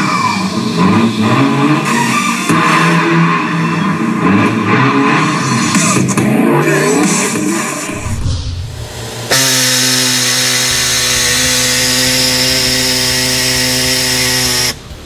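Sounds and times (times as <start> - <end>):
motor buzzing drone: 7.6 - 15.0.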